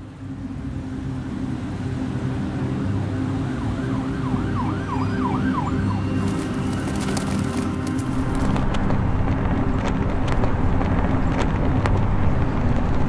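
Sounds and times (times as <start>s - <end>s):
city traffic rumble: 0.0s - 13.0s
siren yelping: 3.1s - 7.9s.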